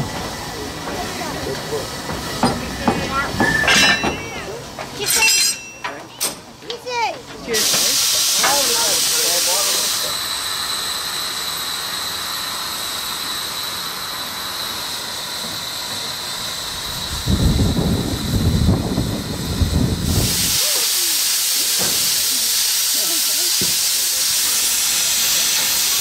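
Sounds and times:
steam hissing from locomotive: 0:00.0 - 0:26.0
loud irregular low rumbling: 0:16.6 - 0:20.4.

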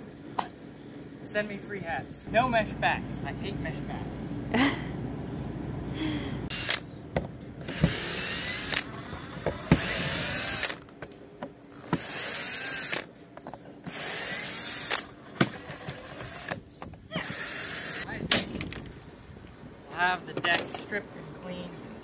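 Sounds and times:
power drill running: 0:06.5 - 0:06.8, 0:07.6 - 0:10.8, 0:11.8 - 0:13.1, 0:13.8 - 0:16.6, 0:17.3 - 0:18.1.

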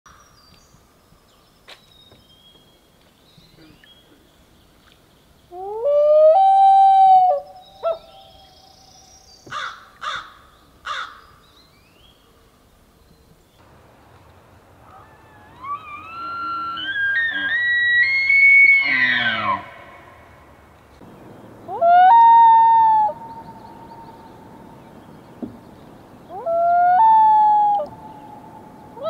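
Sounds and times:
loon wailing: 0:14.8 - 0:20.0, 0:21.7 - 0:23.3, 0:26.3 - 0:28.0
elk bugle whistle: 0:14.9 - 0:19.7.

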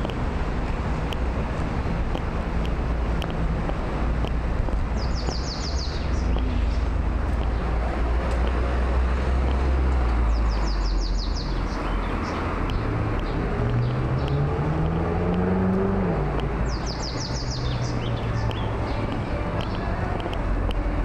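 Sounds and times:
hum of passing cars: 0:00.0 - 0:21.0
vehicle pulling away: 0:00.0 - 0:21.0
bird chirping: 0:04.9 - 0:07.7, 0:10.2 - 0:15.6, 0:16.4 - 0:19.9.

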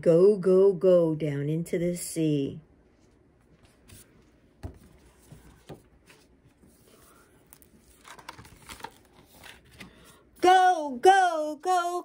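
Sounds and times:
book page rustling: 0:03.0 - 0:10.3
soft knocks on book: 0:04.6 - 0:05.9.

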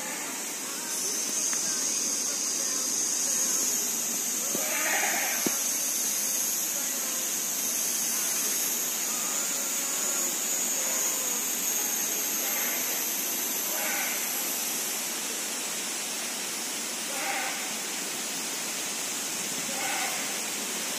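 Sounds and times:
steady high-pitched drone: 0:00.0 - 0:20.9
short bleat-like call: 0:04.6 - 0:05.6, 0:13.7 - 0:14.2, 0:17.1 - 0:17.7, 0:19.7 - 0:20.4.

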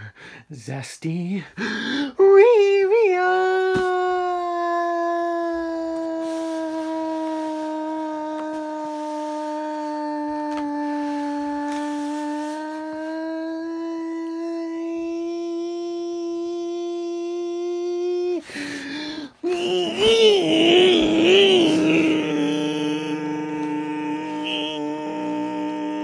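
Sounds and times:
person holding long sung note: 0:01.9 - 0:26.0.

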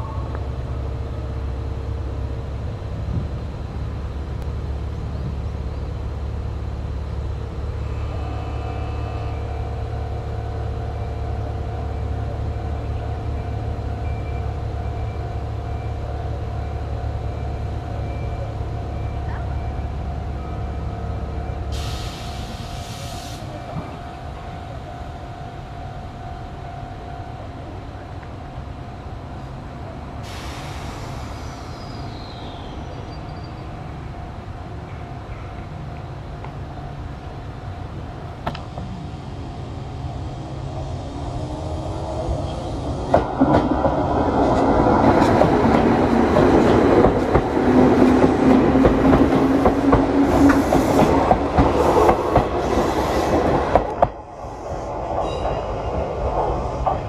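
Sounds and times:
train equipment low rumble: 0:00.0 - 0:57.0
compressed air hiss: 0:21.7 - 0:23.5, 0:30.2 - 0:31.7.

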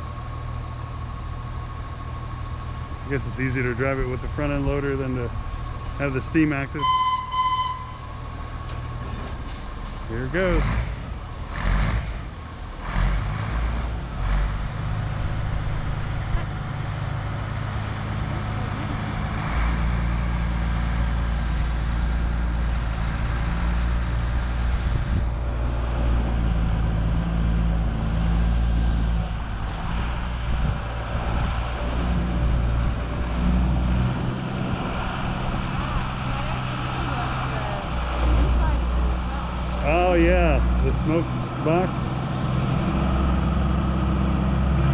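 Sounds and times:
diesel loader engine drone: 0:00.0 - 0:44.9.

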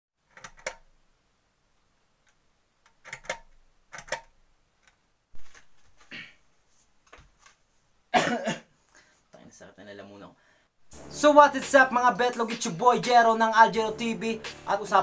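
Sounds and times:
rustling: 0:05.3 - 0:08.0.

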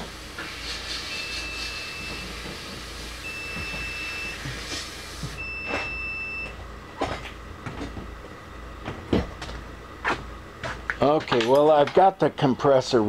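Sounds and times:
steady hiss and hum: 0:00.0 - 0:13.0.

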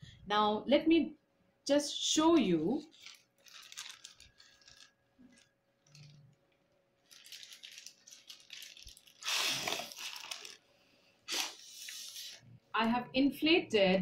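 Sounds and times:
plastic bag crinkling: 0:02.2 - 0:12.4.

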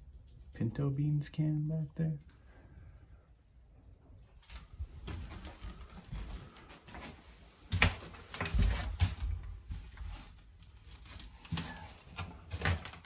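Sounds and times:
footsteps on wooden floorboards: 0:05.0 - 0:10.3.

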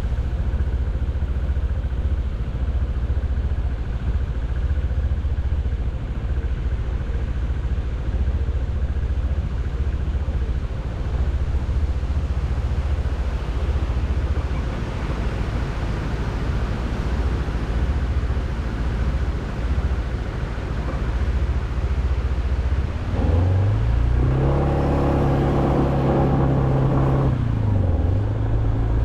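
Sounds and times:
road vehicle rumble: 0:00.0 - 0:29.0
wind on microphone: 0:10.6 - 0:29.0.

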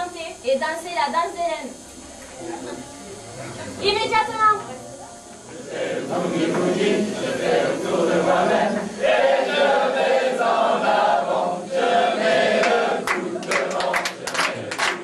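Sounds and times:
rhythmic clapping: 0:05.3 - 0:10.6, 0:11.2 - 0:15.0
group singing and chanting: 0:05.3 - 0:15.0.

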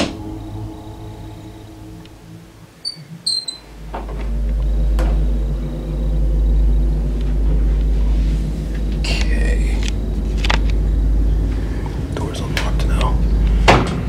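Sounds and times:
deep loud rumble: 0:00.0 - 0:14.0
short high squeaks: 0:02.8 - 0:03.7.

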